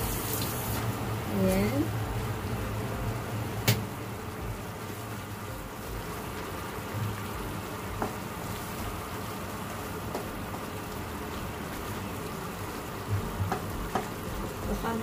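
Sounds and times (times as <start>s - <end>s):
curry bubbling and sizzling: 0.0s - 15.0s
spatula tapping pan: 8.0s - 8.2s, 10.1s - 10.7s, 13.4s - 14.2s.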